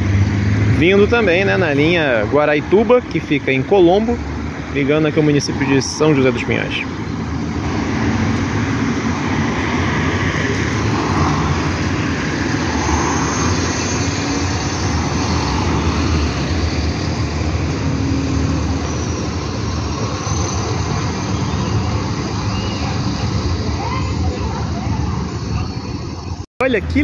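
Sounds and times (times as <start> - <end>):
street traffic noise: 0.0 - 27.0
bus engine running: 6.0 - 26.4.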